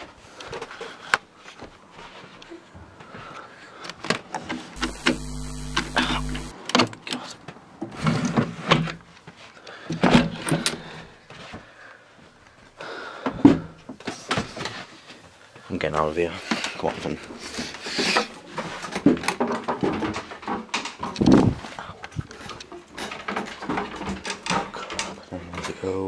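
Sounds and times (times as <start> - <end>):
electronic glitch buzz: 4.8 - 6.5.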